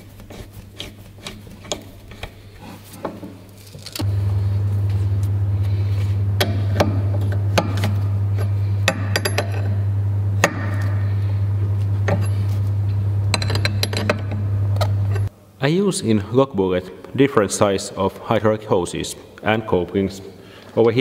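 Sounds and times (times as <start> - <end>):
steady low hum: 3.9 - 15.6.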